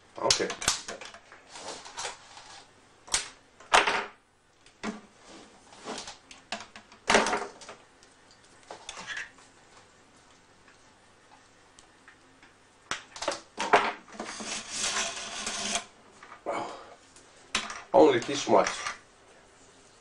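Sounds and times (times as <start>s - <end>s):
wire scraping through plastic: 14.1s - 15.9s.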